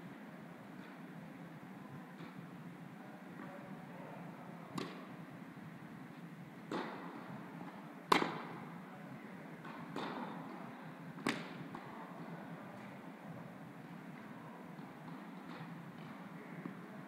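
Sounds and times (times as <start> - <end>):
tennis ball pops: 8.1 - 8.4, 11.2 - 11.5.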